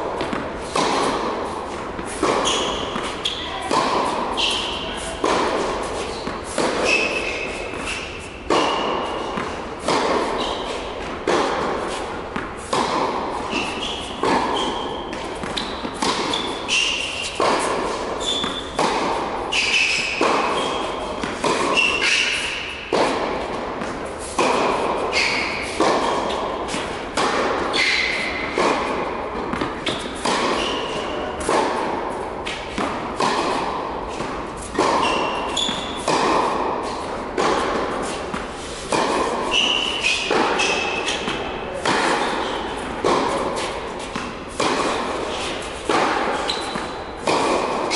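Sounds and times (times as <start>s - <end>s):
tennis ball hits echoing: 0.0s - 47.9s
tennis balls bouncing on court: 0.0s - 47.9s
shoe squeaks: 2.2s - 3.7s, 4.3s - 5.3s, 5.9s - 9.4s, 10.2s - 11.0s, 13.4s - 18.8s, 19.4s - 22.8s, 25.0s - 26.6s, 27.7s - 28.6s, 29.8s - 31.4s, 34.6s - 36.1s, 39.4s - 41.3s, 46.3s - 47.2s.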